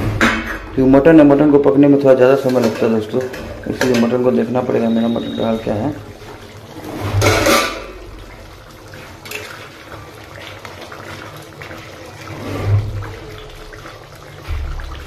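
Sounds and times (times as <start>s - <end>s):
curry bubbling: 0.0s - 15.0s
low thump: 14.4s - 15.0s.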